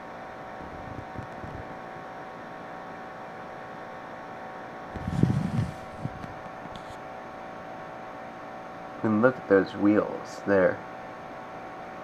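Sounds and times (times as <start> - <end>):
faint electrical hum: 0.0 - 12.0
camera handling rumble: 4.9 - 7.0.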